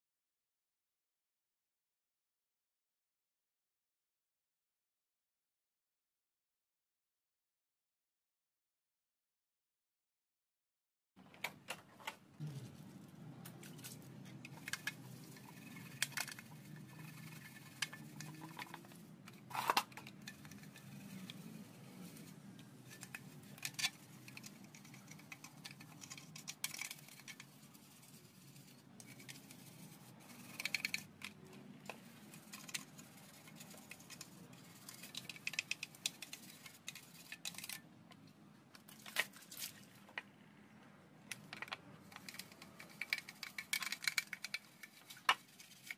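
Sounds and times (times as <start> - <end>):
plastic scraping and clicking: 13.4 - 40.3, 41.3 - 45.9.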